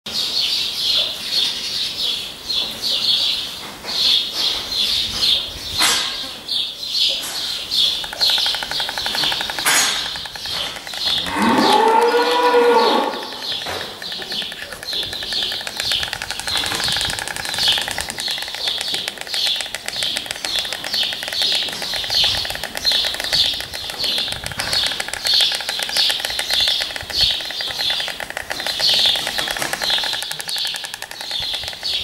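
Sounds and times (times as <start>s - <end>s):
high chirping: 7.1s - 32.0s
cow mooing: 11.2s - 13.4s.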